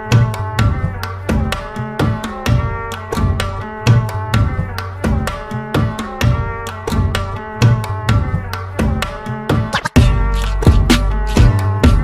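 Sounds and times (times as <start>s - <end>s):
sustained deep bass: 10.0s - 12.0s.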